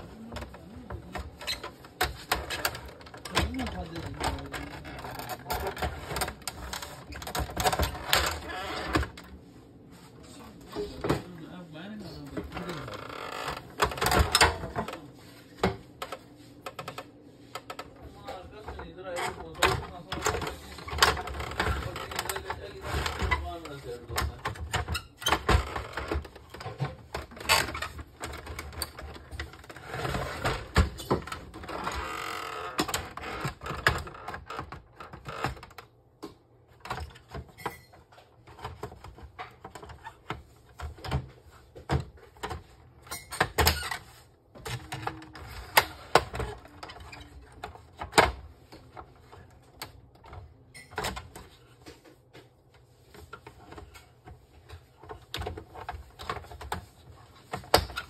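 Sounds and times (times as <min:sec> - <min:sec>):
plastic parts clicking and rattling: 0:52.7 - 0:58.0.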